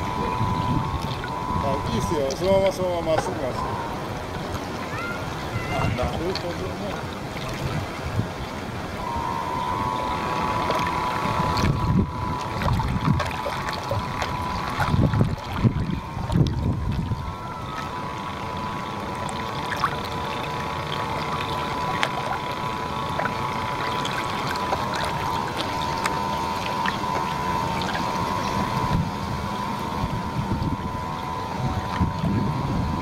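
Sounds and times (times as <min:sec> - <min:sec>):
wind on microphone: 0:00.0 - 0:19.0, 0:23.0 - 0:33.0
model boat motor whining: 0:00.0 - 0:33.0
water splashing against hull: 0:00.0 - 0:33.0.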